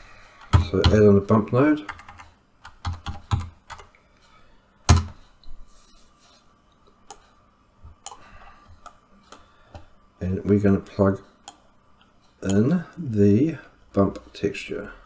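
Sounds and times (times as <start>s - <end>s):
keyboard and mouse clicks: 1.8s - 4.0s, 11.4s - 11.6s.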